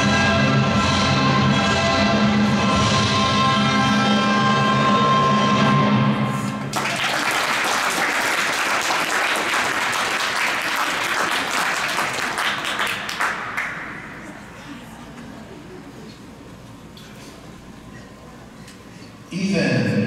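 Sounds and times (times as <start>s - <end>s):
audience applauding: 6.7s - 14.5s.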